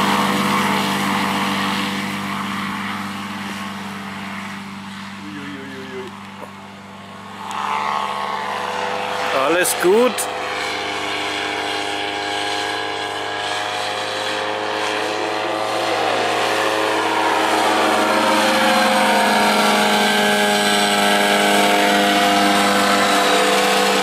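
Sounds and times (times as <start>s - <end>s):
paramotor engine and propeller: 0.0s - 24.0s.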